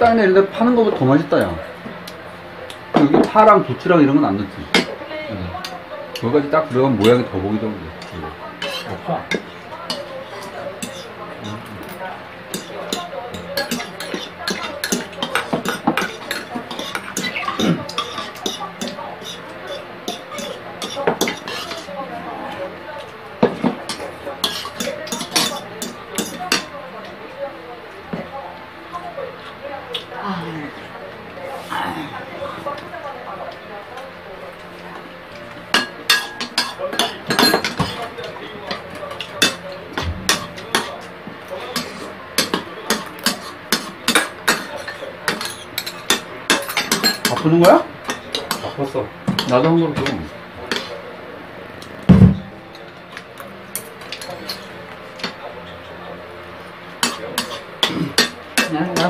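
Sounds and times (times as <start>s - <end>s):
spoons clinking on ceramic bowls: 10.8s - 21.9s, 23.4s - 26.7s, 35.7s - 39.6s, 41.7s - 51.0s.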